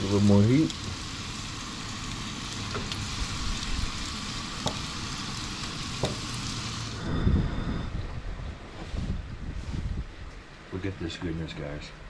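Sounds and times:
fish frying in hot oil: 0:00.0 - 0:07.0.

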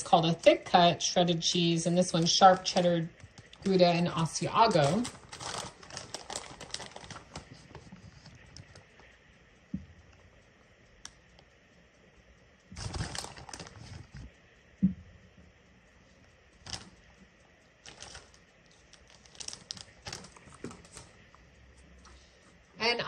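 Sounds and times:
cheese pattering from package: 0:02.1 - 0:08.9, 0:12.8 - 0:14.2, 0:16.6 - 0:17.0, 0:17.8 - 0:21.2.

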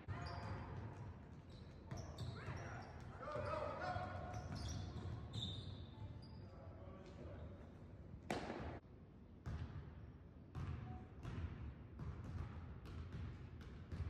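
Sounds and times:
sharp smack echoing in gymnasium: 0:08.3 - 0:08.8.

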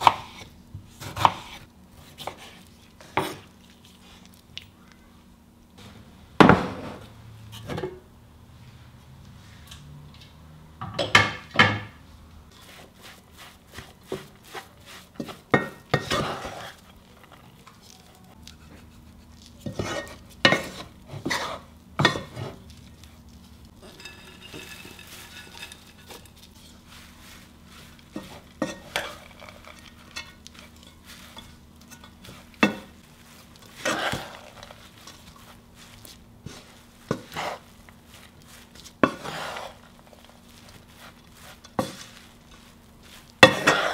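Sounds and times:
wooden spatula scraping in pan: 0:12.5 - 0:43.9.

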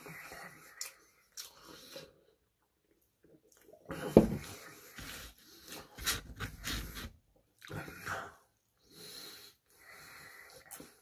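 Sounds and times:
nasal breathing: 0:07.8 - 0:11.0.

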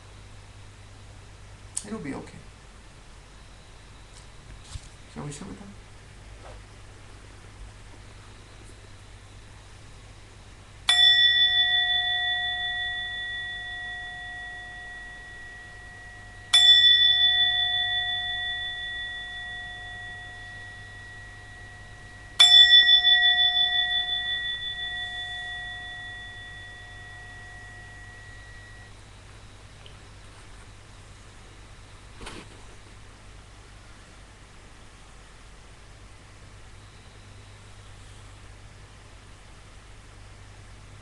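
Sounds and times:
meditation bell ringing: 0:10.8 - 0:29.8.

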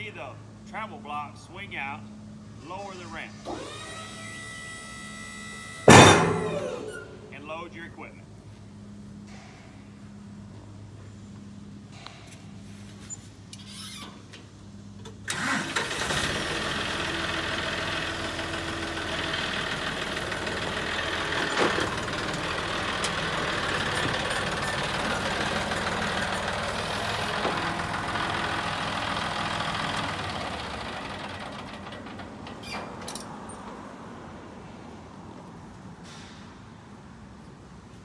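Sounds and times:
tractor diesel engine: 0:00.0 - 0:07.8, 0:15.0 - 0:34.3.

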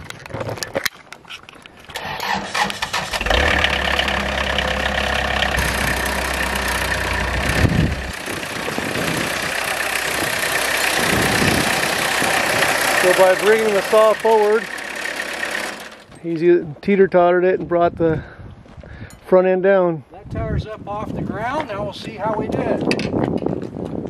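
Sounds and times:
sawmill engine running: 0:01.9 - 0:16.2.

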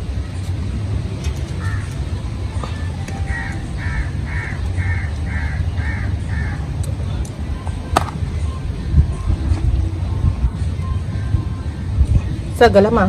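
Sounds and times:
crow cawing: 0:03.3 - 0:06.6.

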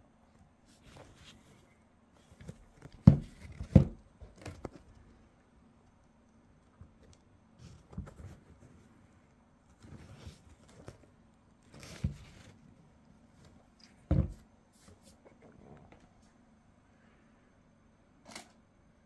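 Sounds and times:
soft rustles of handling shoe: 0:00.5 - 0:04.9, 0:07.6 - 0:16.4.

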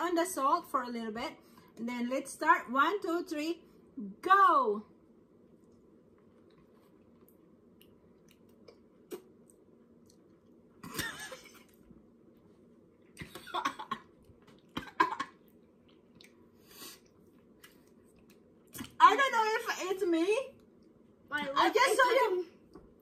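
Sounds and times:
wet mouth clicks: 0:07.2 - 0:10.5, 0:15.5 - 0:19.0.

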